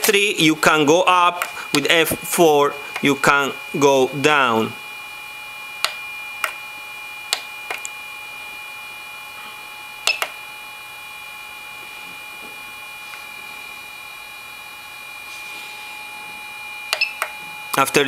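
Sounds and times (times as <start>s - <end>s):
steady high-pitched whine: 0.0s - 18.0s
button clicks: 10.1s - 10.4s, 16.9s - 17.3s.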